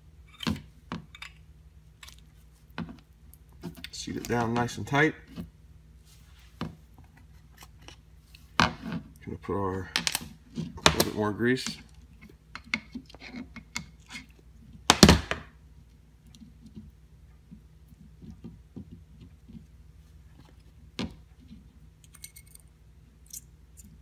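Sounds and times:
small steel parts clicking: 22.0 - 24.0.

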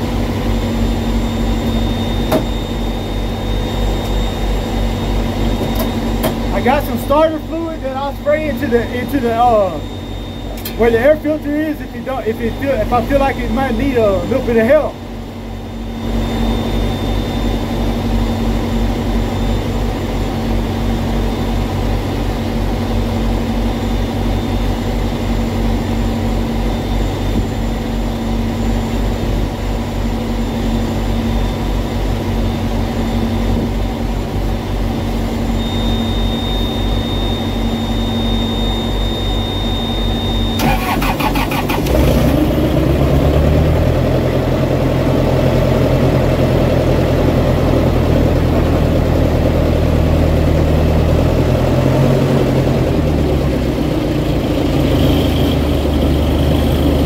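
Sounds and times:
steady whine: 0.0 - 57.0
diesel engine cranking and running: 40.6 - 57.0.

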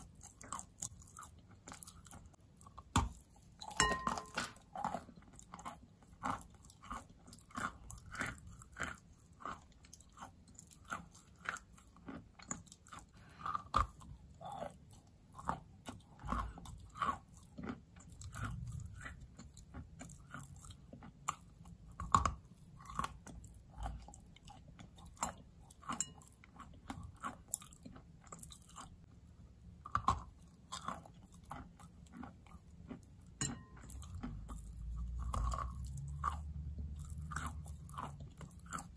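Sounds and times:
chewing chalk crunching: 0.0 - 29.2, 29.8 - 38.9.

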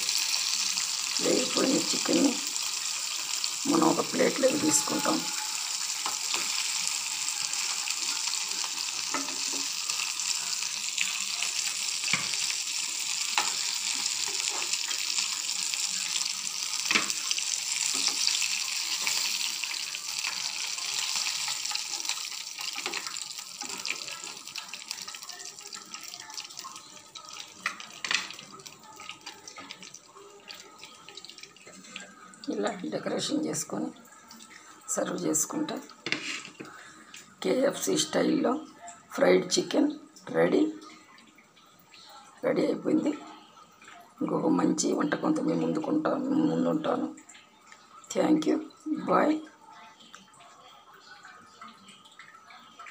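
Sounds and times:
chicken deep-frying in oil: 0.0 - 41.1.

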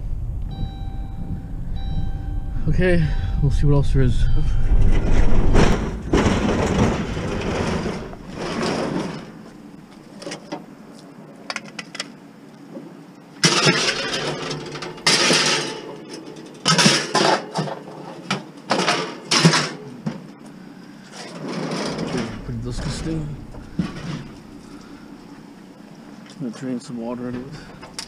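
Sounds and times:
vehicle engine rumbling: 0.0 - 10.8, 21.7 - 26.2, 27.2 - 28.0
rustling and clattering bursts: 4.5 - 10.6, 13.4 - 20.4, 21.1 - 25.6.

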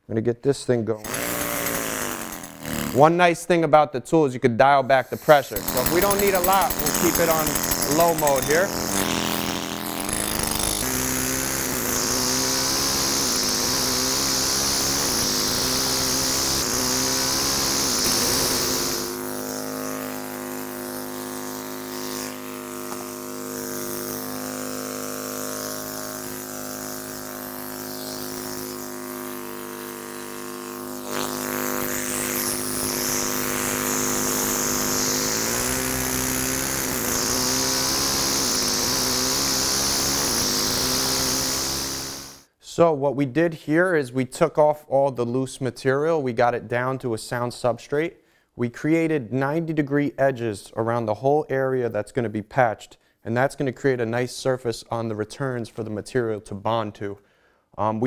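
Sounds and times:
air hammer chipping stone: 1.0 - 3.2, 4.9 - 42.5.

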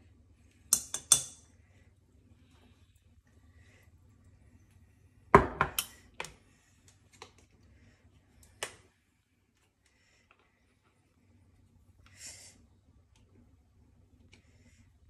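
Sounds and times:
metal spoon clinking on containers: 0.7 - 1.5.

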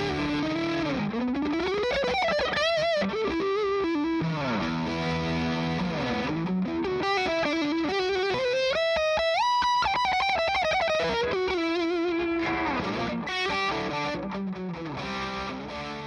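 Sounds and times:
distorted electric guitar lead: 0.0 - 16.0.

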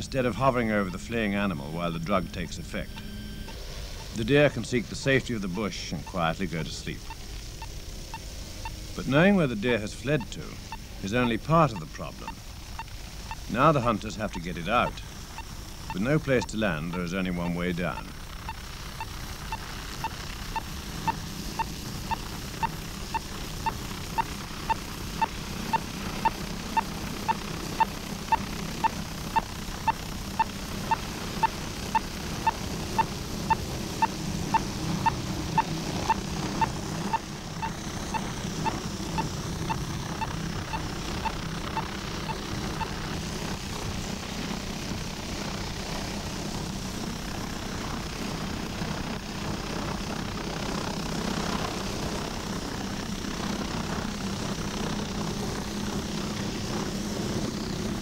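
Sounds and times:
helicopter hovering drone: 0.0 - 58.0
radio receiver beeping: 1.8 - 4.2, 5.5 - 6.4, 10.1 - 43.1.

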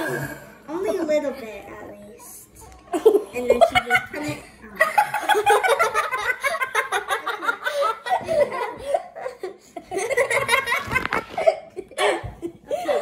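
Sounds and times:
girls laughing: 2.9 - 13.0.

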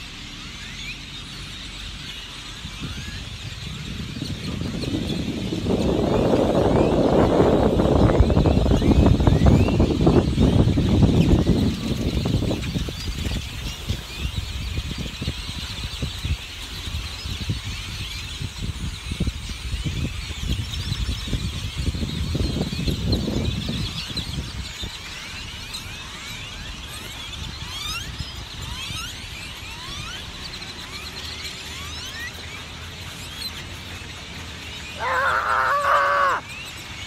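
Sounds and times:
flock of birds squealing: 0.0 - 37.0
wings fluttering: 35.0 - 36.4.

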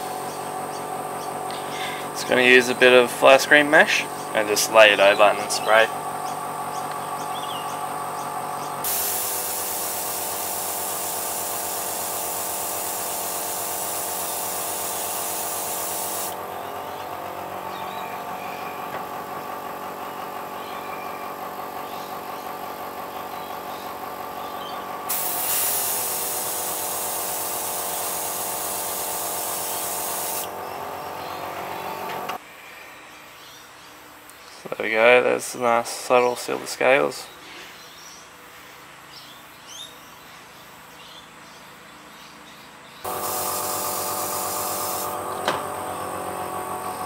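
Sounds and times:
compressor humming: 0.0 - 32.4, 43.1 - 47.0
airbrush spraying hiss: 8.8 - 16.4, 25.1 - 30.5, 43.1 - 45.2.

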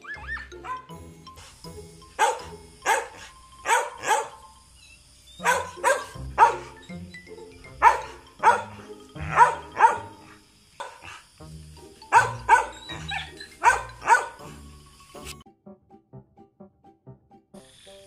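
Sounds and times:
dog barking: 0.2 - 0.9, 2.2 - 4.4, 5.4 - 6.9, 7.8 - 11.2, 12.1 - 14.6.

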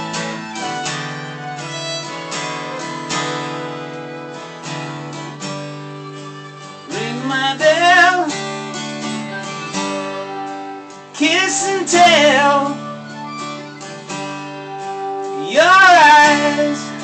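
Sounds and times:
wavering melodic line: 0.0 - 4.6, 11.9 - 16.8
acoustic guitar strumming: 0.0 - 17.0
fiddle bowing: 0.0 - 17.0.

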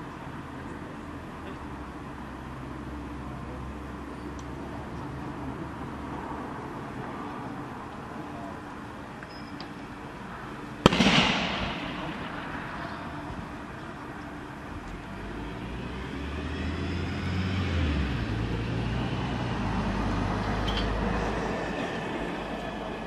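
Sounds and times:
fire crackling: 10.7 - 15.1
bang from burning car: 10.9 - 12.8.

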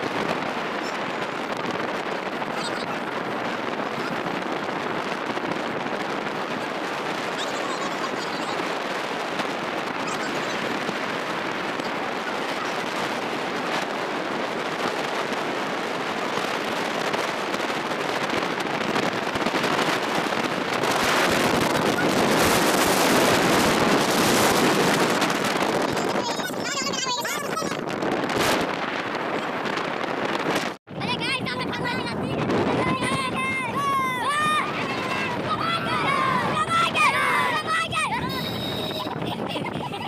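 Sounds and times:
road noise: 0.0 - 40.0
wind buffeting microphone: 0.0 - 40.0.

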